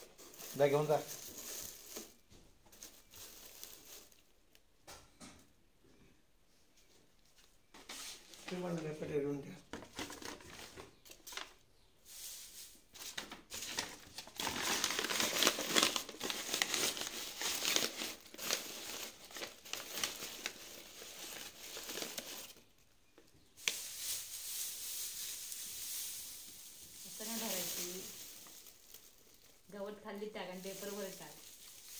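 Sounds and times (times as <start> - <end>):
paper crinkling and rustling: 0.0 - 4.3, 9.7 - 11.6, 12.2 - 22.8, 23.6 - 31.9.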